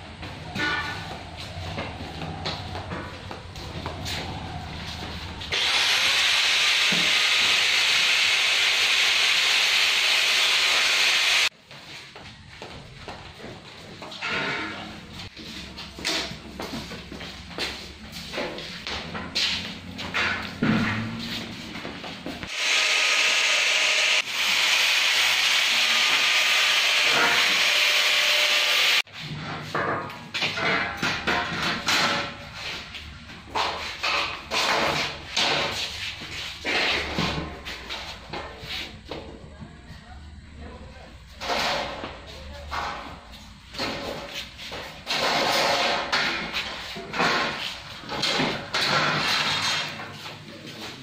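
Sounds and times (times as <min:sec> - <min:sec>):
loud steady hissing: 0:05.6 - 0:11.5.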